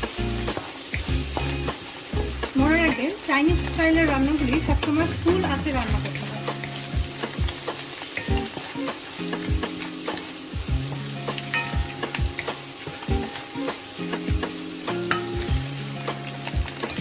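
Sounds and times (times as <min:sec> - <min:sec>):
food sizzling in a wok: 0:00.0 - 0:17.0.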